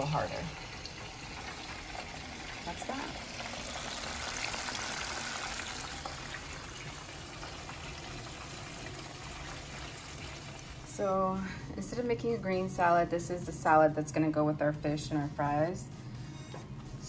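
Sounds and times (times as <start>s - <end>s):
cooking oil sizzling: 0.0s - 10.9s.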